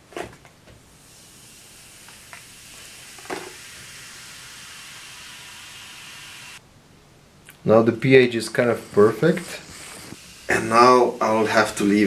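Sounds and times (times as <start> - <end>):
liquid fizzing: 1.0 - 6.6, 8.6 - 12.0.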